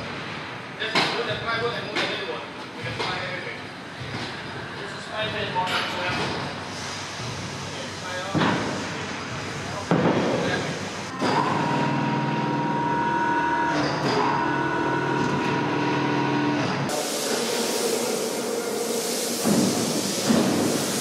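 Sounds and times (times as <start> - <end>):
machinery humming: 6.6 - 21.0
loud even hiss: 16.9 - 21.0.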